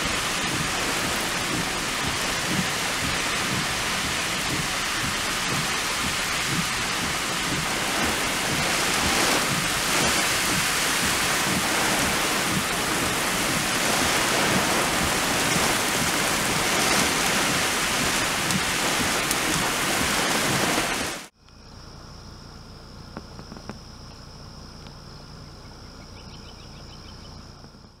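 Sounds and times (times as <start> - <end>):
torrential rain: 0.0 - 21.3
insects trilling: 21.4 - 27.9.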